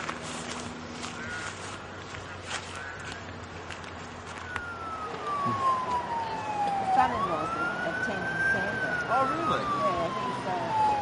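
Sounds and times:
emergency vehicle siren wail: 0:04.2 - 0:11.0.

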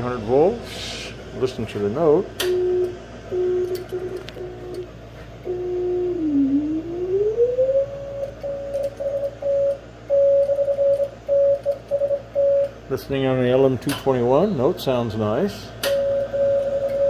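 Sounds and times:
morse code beat tone: 0:02.4 - 0:12.8, 0:16.0 - 0:17.0.

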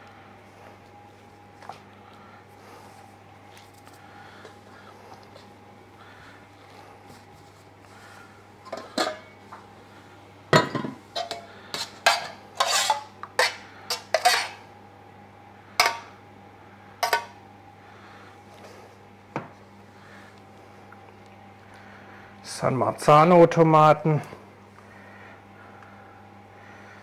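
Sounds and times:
steel lids clattering on containers: 0:08.7 - 0:09.3.

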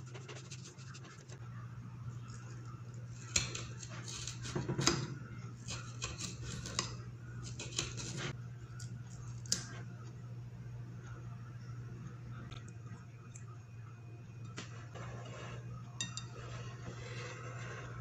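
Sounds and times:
knife cutting watermelon rind: 0:03.1 - 0:08.4
knife scraping plate: 0:05.6 - 0:08.4, 0:14.6 - 0:18.0
low hum: 0:08.3 - 0:18.0.

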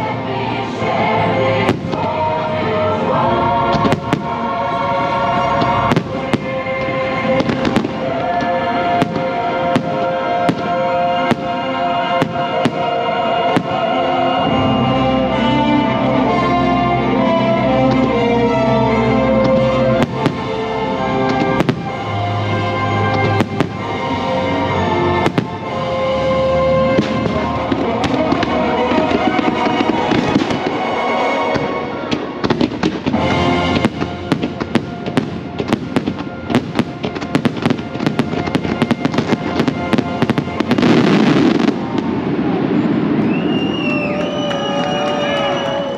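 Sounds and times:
orchestral music: 0:00.0 - 0:45.9
firework bangs and crackles: 0:01.0 - 0:02.5, 0:03.6 - 0:14.6, 0:17.8 - 0:45.9.

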